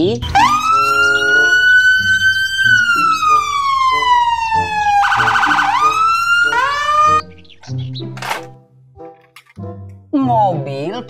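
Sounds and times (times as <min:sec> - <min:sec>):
police siren wailing: 0:00.2 - 0:07.2.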